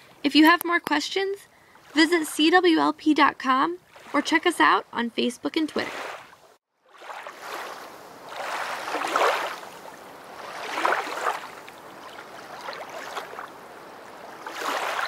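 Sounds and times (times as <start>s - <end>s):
rushing water waves: 3.8s - 4.6s, 5.6s - 15.0s.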